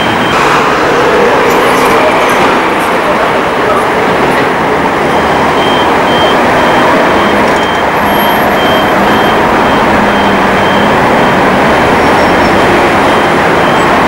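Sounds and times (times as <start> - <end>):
road noise rush: 0.0 - 14.0
short high beeps: 5.1 - 11.4.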